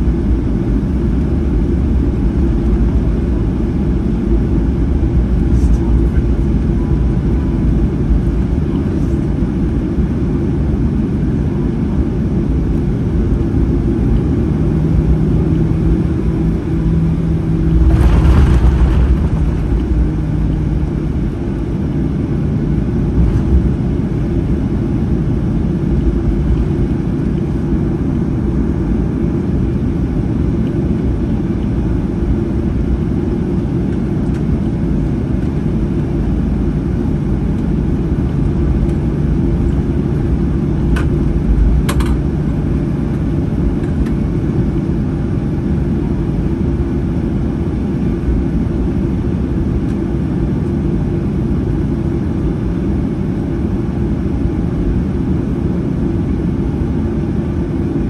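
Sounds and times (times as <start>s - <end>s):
jet engines idling: 0.1s - 45.6s
loud rush of air: 16.4s - 22.1s
airframe rolling: 17.4s - 21.2s.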